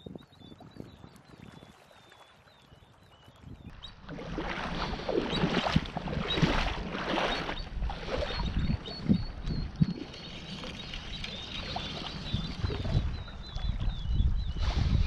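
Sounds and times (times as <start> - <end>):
sea water sloshing around legs: 0.7 - 14.0
low thuds of wading steps: 3.4 - 15.0.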